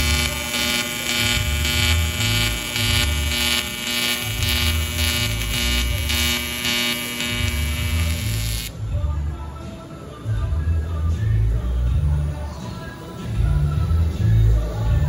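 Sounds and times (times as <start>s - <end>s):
welding arc buzzing and pulsing: 0.0s - 8.8s.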